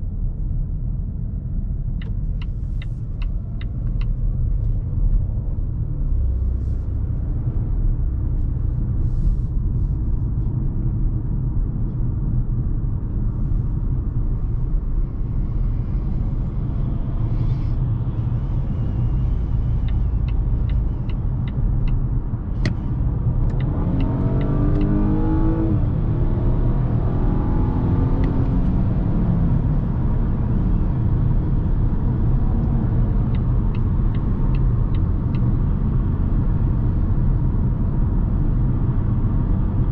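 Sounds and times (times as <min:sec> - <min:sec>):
car engine accelerating: 0:12.3 - 0:39.8.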